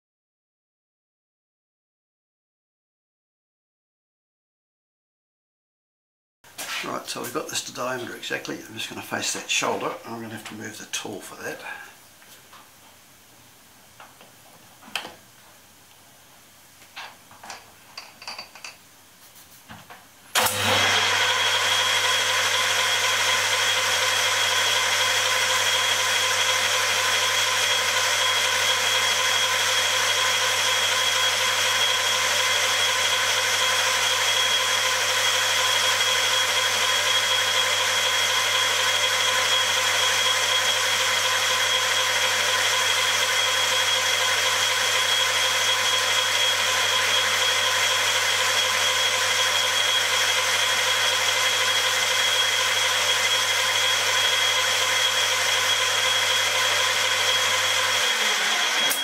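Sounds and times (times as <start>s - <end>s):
metal lathe humming and whining: 20.4s - 59.0s.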